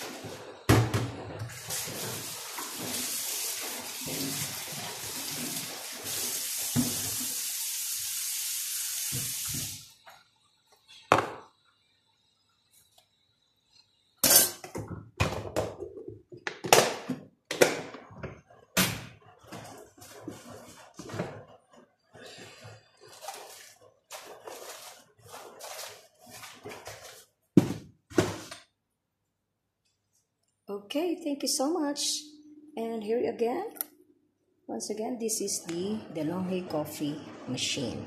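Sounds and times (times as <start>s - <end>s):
tap running into a sink: 6.7s - 7.3s.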